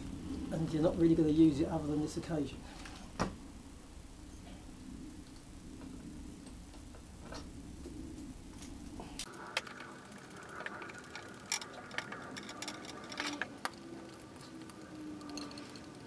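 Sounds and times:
metal parts and tools clicking: 10.5 - 16.0.

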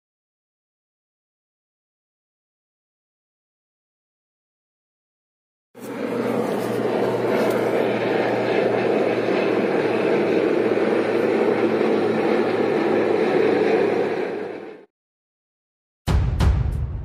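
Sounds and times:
helicopter flying past: 5.8 - 14.9.

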